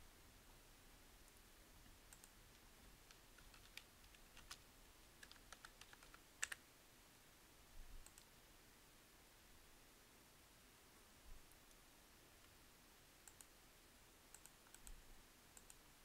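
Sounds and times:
faint keyboard typing: 1.8s - 6.6s, 8.0s - 8.4s, 13.2s - 13.6s, 14.3s - 15.9s.

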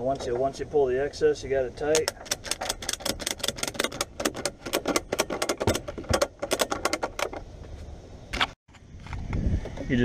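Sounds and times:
ratchet strap clicking: 2.0s - 7.4s.

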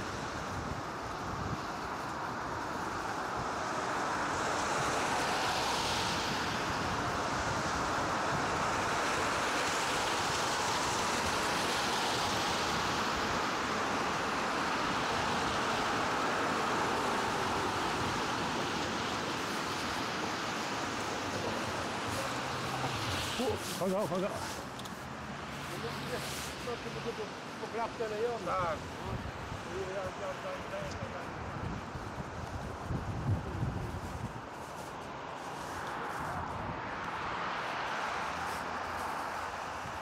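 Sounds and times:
bicycle tyres on snow: 0.0s - 40.0s
wind on microphone: 30.7s - 37.2s.

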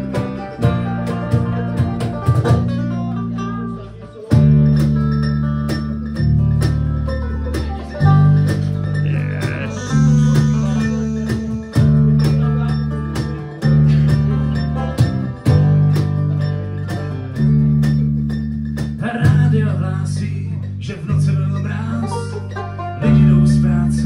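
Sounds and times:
banjo picking: 0.0s - 24.0s
acoustic guitar picking: 8.0s - 24.0s
bass line: 8.3s - 14.4s
electric guitar picking: 8.3s - 18.9s.

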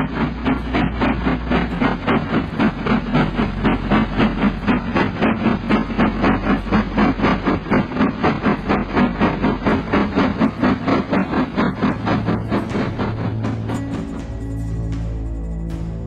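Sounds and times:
steam locomotive chuffing: 0.0s - 16.0s.

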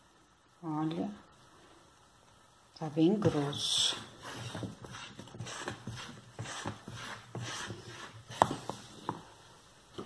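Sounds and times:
wet swishes of stirring soap: 3.2s - 9.4s.

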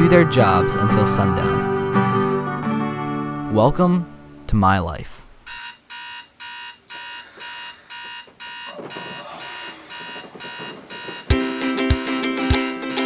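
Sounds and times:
digital alarm clock beeping: 5.5s - 12.8s
plucked ukulele music: 11.3s - 13.0s.

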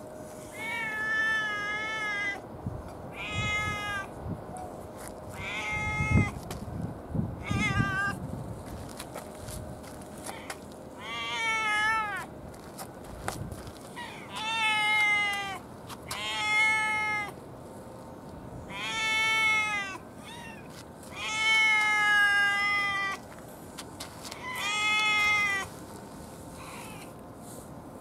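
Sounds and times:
cat meowing: 0.6s - 2.4s, 3.1s - 4.1s, 5.3s - 6.4s, 7.4s - 8.2s, 11.0s - 12.3s, 14.0s - 17.3s, 18.7s - 23.2s, 24.4s - 25.7s.

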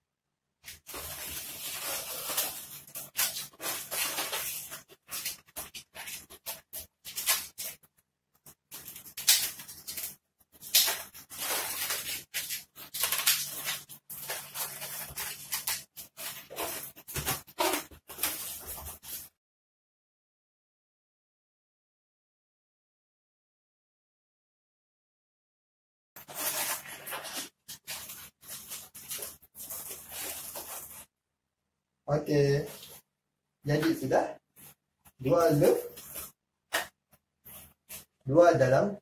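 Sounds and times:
balloons rubbing and squeaking: 0.6s - 19.4s, 26.2s - 31.1s, 34.4s - 38.2s.

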